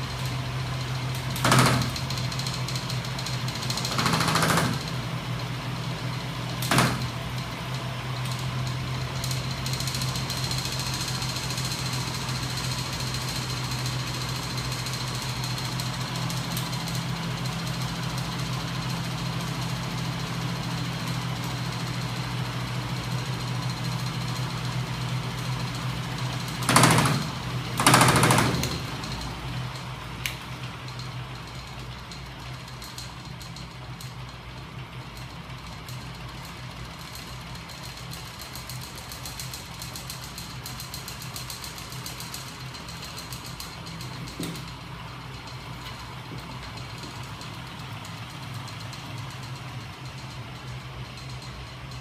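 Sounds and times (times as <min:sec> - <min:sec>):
loud mechanical clattering: 0:00.0 - 0:52.0
machine humming and rattling: 0:00.0 - 0:52.0.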